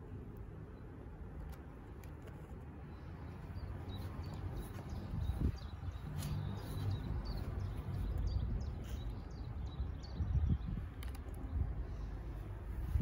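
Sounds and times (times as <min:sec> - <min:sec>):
small birds chirping: 0:00.1 - 0:13.0
wind rumble on microphone: 0:03.9 - 0:13.0.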